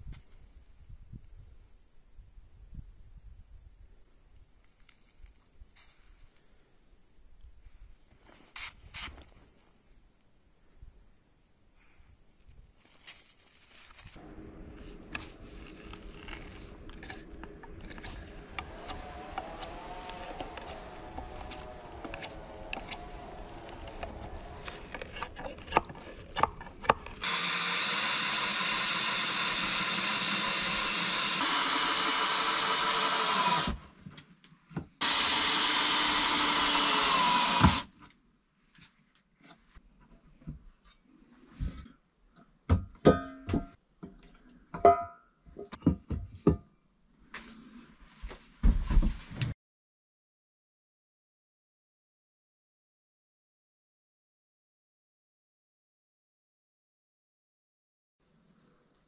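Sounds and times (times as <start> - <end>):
power drill running: 17.0 - 25.4, 27.0 - 33.8, 35.0 - 37.9.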